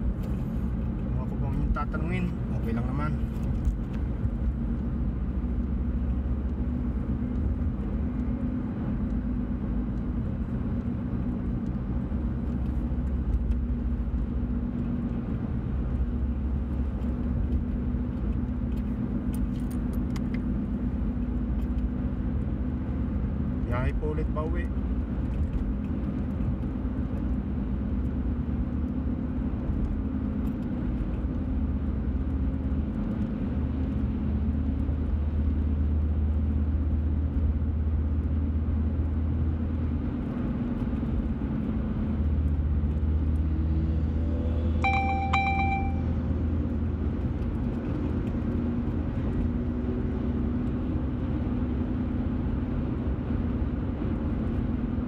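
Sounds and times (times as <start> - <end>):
car engine and tyre rumble: 0.0 - 55.0
brief pitched tone: 44.8 - 46.2.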